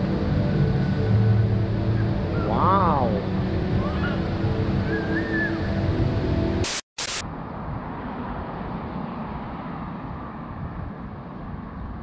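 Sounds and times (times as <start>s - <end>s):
music playing: 0.0s - 6.6s
steady outdoor hiss: 0.0s - 12.0s
indoor waterfall rushing: 3.5s - 6.6s
burst of hiss: 6.6s - 7.2s.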